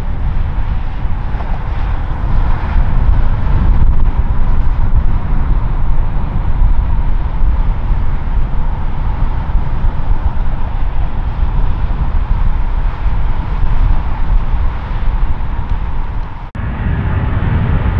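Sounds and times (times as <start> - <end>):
jet engine rumble: 0.0 - 17.9.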